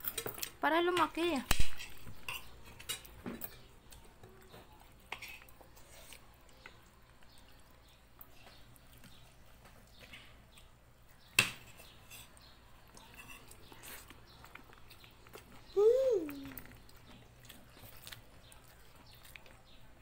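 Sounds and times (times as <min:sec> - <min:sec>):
spoons clinking on ceramic plates: 0:01.8 - 0:03.7.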